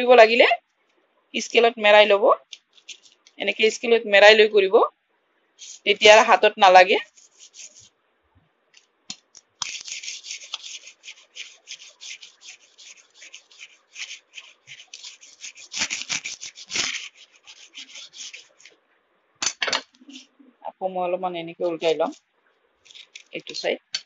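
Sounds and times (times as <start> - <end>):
sandpaper scraping knife blade: 2.8 - 3.2, 7.0 - 7.9, 9.6 - 18.7, 22.9 - 23.5.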